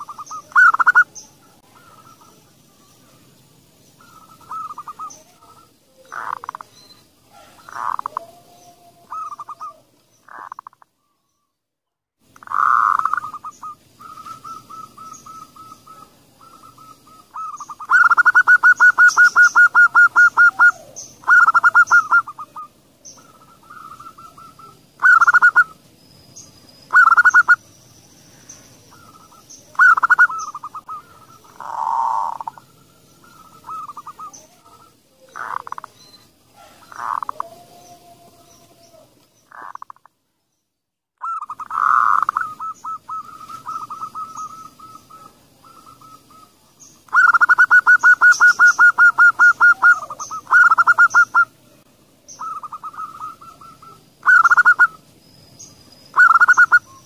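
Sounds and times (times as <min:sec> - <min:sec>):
fast rattling bird trill: 0:00.0 - 0:02.4, 0:03.9 - 0:08.2, 0:12.4 - 0:28.0, 0:28.8 - 0:37.4, 0:41.2 - 0:51.5, 0:52.3 - 0:55.0, 0:55.6 - 0:57.0
doves cooing: 0:00.0 - 0:10.8, 0:12.4 - 0:25.9, 0:26.9 - 0:27.6, 0:28.4 - 0:40.1, 0:41.2 - 0:51.6, 0:52.3 - 0:55.1, 0:56.1 - 0:57.0.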